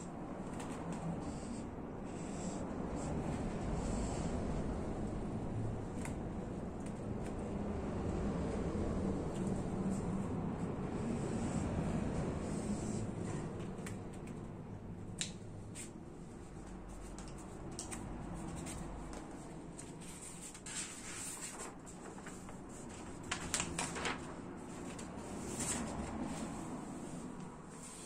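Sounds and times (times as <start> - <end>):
paper rustling: 16.7 - 28.0.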